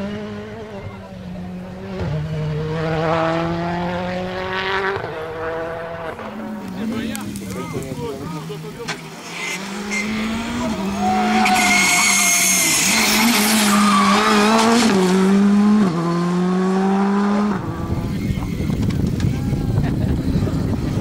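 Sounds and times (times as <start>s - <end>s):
tyres squealing: 8.9s - 14.8s.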